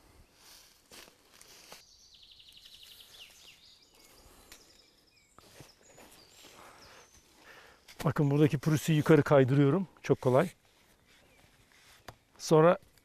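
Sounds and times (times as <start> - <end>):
bird chirps: 1.6 - 9.0.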